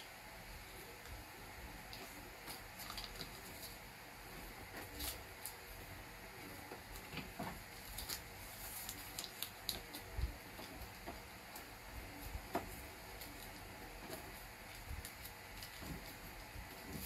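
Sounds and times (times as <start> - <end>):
paper rustling and clicking: 1.9 - 3.8, 6.9 - 11.2.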